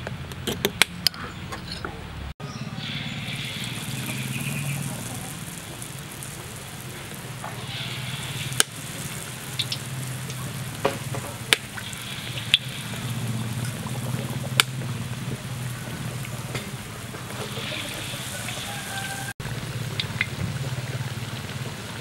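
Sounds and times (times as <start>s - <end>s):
oil sizzling: 2.4s - 22.0s
oil spattering pops: 3.2s - 19.0s.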